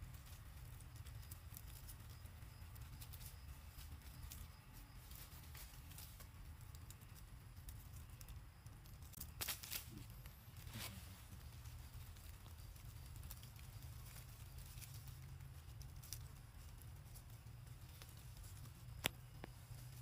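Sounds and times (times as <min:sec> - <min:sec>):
leaves and twigs rustling: 0:00.0 - 0:20.0
low steady rumble: 0:00.0 - 0:20.0.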